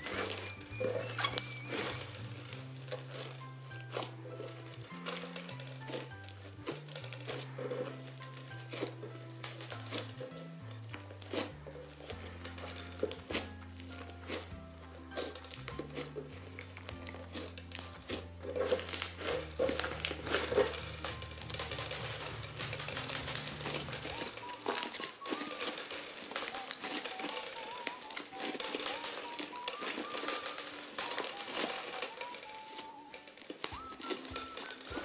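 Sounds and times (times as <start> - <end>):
background music: 0.0 - 35.0
crunchy slime squished by hand: 0.0 - 35.0.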